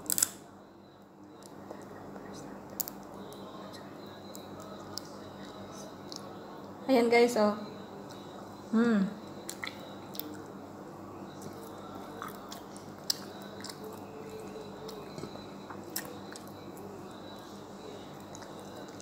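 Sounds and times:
person chewing wetly: 0:09.4 - 0:10.5, 0:11.3 - 0:17.4, 0:18.1 - 0:19.0
mouth clicks and smacks: 0:09.5 - 0:10.4.

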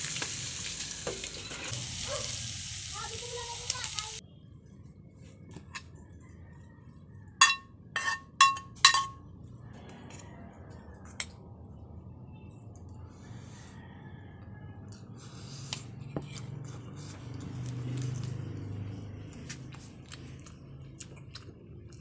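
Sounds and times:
steel bowl ringing from knocks: 0:07.4 - 0:09.2.

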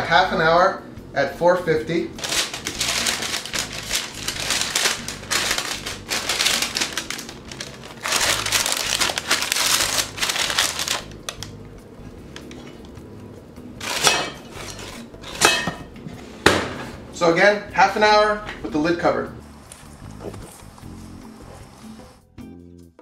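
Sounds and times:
parchment paper crinkling: 0:02.2 - 0:11.6
cast iron lid clanking: 0:13.8 - 0:16.9.

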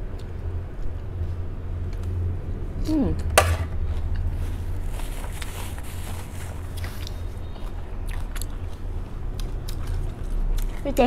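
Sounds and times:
steady low hum: 0:00.0 - 0:11.0
person chewing crisp lettuce: 0:03.8 - 0:11.0.

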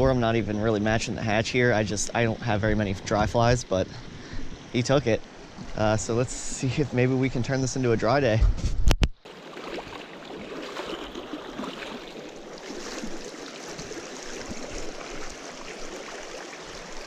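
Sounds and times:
stream water rushing over rocks: 0:09.2 - 0:17.0.

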